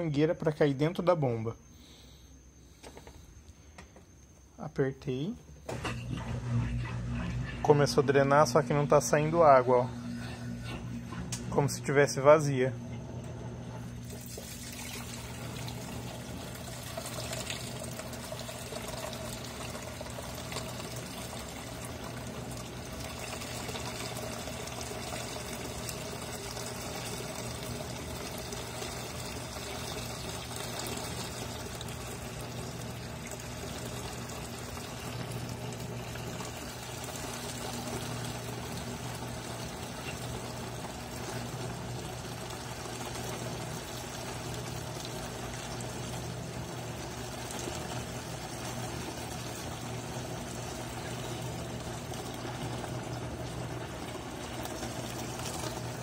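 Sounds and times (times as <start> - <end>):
drain pump humming: 0.0 - 56.0
water pouring into a tub: 14.0 - 56.0.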